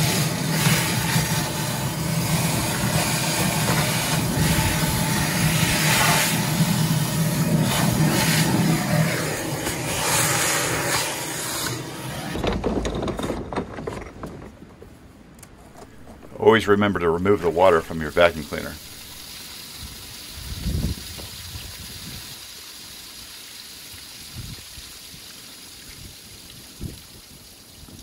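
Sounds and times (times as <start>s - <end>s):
wet dry vacuum sucking water: 0.0s - 12.5s, 15.8s - 22.6s.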